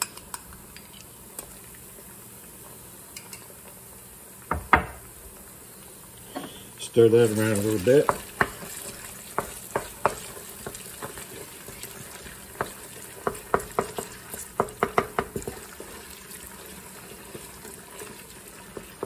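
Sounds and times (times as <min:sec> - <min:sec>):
onions sizzling in oil: 0:00.0 - 0:19.0
wooden spoon knocking on pot: 0:04.5 - 0:05.0, 0:08.0 - 0:11.2, 0:12.5 - 0:15.7.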